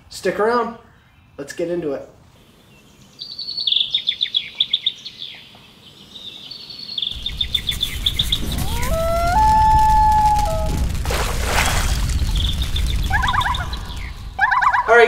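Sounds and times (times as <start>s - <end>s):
songbirds chirping: 0.0s - 9.0s
campfire crackling: 7.1s - 15.0s
loon wailing: 8.4s - 11.0s, 13.1s - 15.0s.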